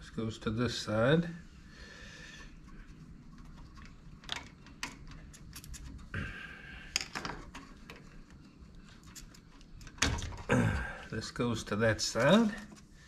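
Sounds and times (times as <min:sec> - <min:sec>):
wire connectors clicking and rattling: 0:03.2 - 0:06.1, 0:06.9 - 0:10.5.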